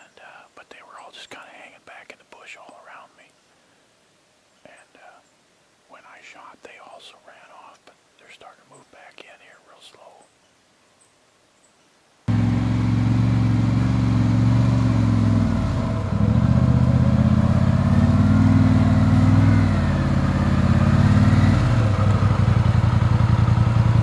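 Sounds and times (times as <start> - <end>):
atv engine running: 12.3 - 24.0.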